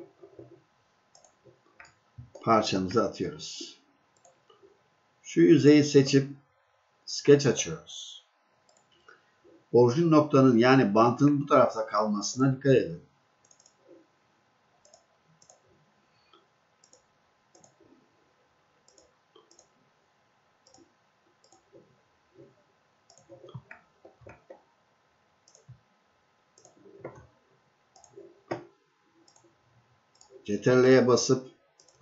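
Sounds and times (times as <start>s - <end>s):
computer mouse clicks: 0.2s - 2.4s, 4.2s - 4.6s, 8.6s - 9.2s, 13.4s - 14.0s, 14.8s - 15.7s, 16.3s - 17.8s, 18.9s - 19.8s, 20.6s - 22.0s, 23.1s - 24.7s, 25.4s - 25.8s, 26.6s - 27.3s, 27.9s - 30.4s, 31.8s - 32.0s.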